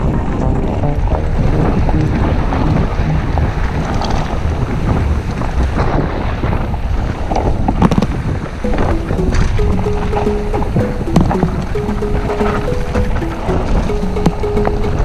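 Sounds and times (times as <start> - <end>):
wind buffeting microphone: 0.0 - 8.6.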